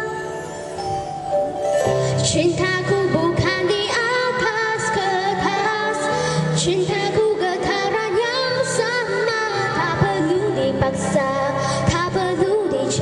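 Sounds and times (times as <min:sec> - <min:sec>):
musical accompaniment: 0:00.0 - 0:13.0
girl singing into a microphone: 0:02.0 - 0:13.0.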